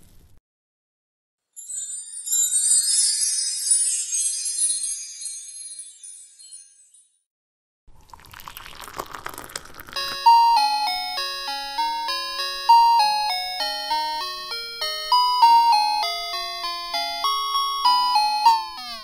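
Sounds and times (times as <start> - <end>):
music box melody: 1.6 - 7.2, 10.0 - 19.0.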